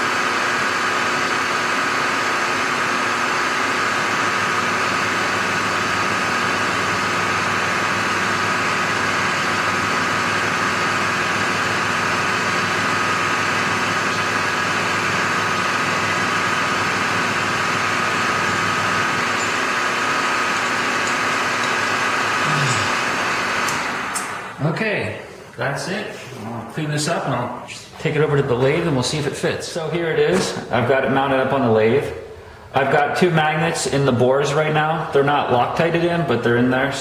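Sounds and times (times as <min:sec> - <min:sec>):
milling machine whine: 0:00.0 - 0:24.6.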